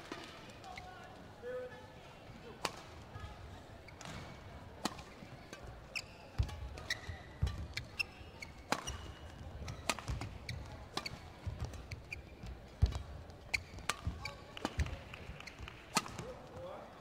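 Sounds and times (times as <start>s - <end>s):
shoes squeaking on court: 3.8s - 16.2s
rackets hitting shuttlecock: 4.0s - 5.8s, 8.6s - 16.4s.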